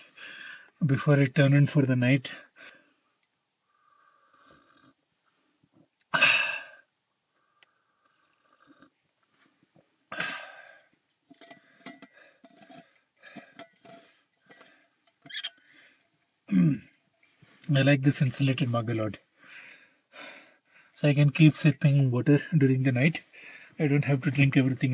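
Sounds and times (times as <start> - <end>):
man exhaling breathily: 6.1 - 6.9, 10.1 - 10.9
screw lid clicking and scraping: 11.3 - 15.6.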